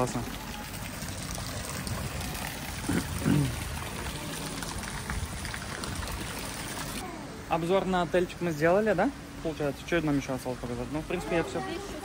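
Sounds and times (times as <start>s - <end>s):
water running and splashing: 0.0s - 7.1s.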